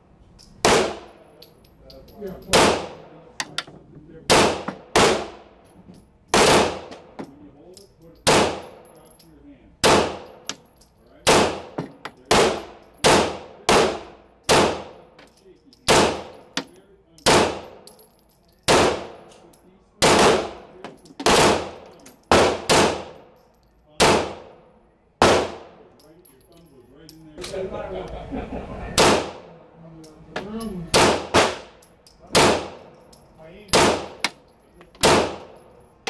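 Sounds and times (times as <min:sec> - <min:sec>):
pistol shots with echo: 0:00.6 - 0:01.2, 0:02.5 - 0:03.2, 0:04.3 - 0:05.5, 0:06.3 - 0:07.2, 0:08.2 - 0:08.8, 0:09.8 - 0:10.6, 0:11.2 - 0:15.1, 0:15.8 - 0:16.6, 0:17.2 - 0:18.0, 0:18.7 - 0:19.3, 0:20.0 - 0:23.4, 0:24.0 - 0:24.6, 0:25.2 - 0:25.9, 0:29.0 - 0:29.5, 0:30.9 - 0:32.9, 0:33.7 - 0:34.4, 0:35.0 - 0:35.8.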